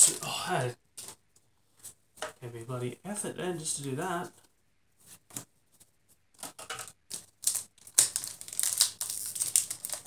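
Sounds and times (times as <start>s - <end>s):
foil wrapper crinkling: 7.1s - 10.0s.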